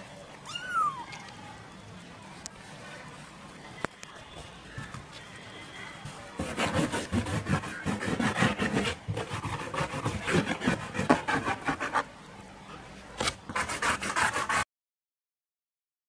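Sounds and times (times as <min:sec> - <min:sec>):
claws scratching cardboard: 0:06.4 - 0:12.1, 0:13.2 - 0:14.6.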